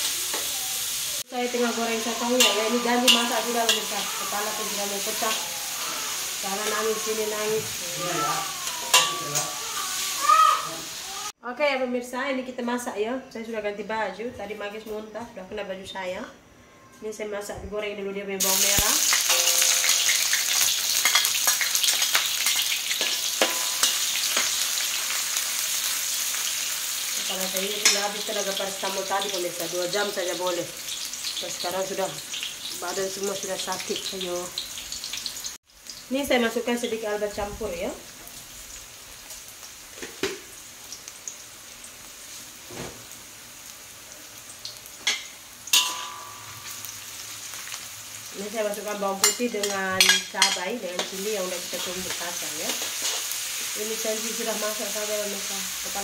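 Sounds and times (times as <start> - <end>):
shallots sizzling in hot oil: 0.0 - 11.4, 18.4 - 56.0
metal spatula scraping a wok: 1.9 - 5.4, 8.8 - 9.6, 22.5 - 24.8, 45.7 - 47.7, 49.2 - 53.4.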